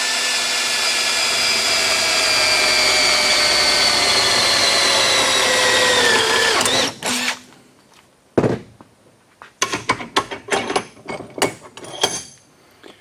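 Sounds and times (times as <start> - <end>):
cordless drill boring through steel: 0.0 - 7.4
metal clicks and knocks: 9.6 - 12.4.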